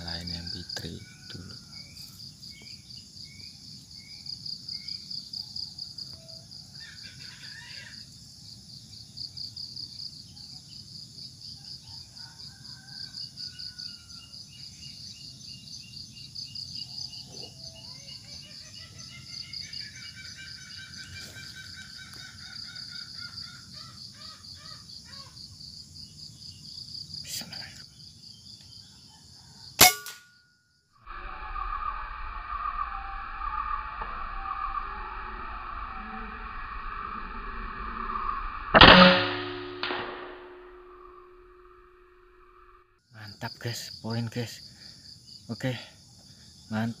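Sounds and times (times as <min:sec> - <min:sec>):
insects chirring: 0:00.0 - 0:47.0
bird calls: 0:13.9 - 0:25.4.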